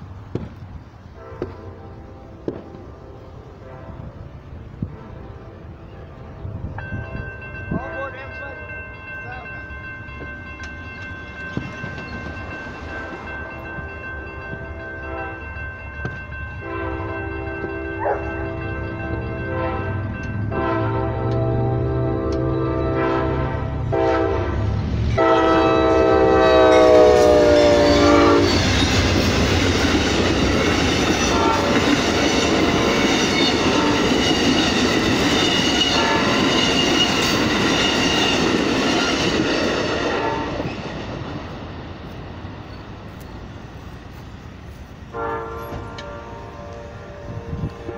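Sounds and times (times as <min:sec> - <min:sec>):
train horn blast: 0:01.1 - 0:06.7, 0:16.6 - 0:18.5, 0:19.4 - 0:29.0, 0:31.1 - 0:34.7, 0:35.5 - 0:37.4, 0:39.9 - 0:40.7, 0:45.1 - 0:47.9
train wheels clattering over rails: 0:26.8 - 0:44.8.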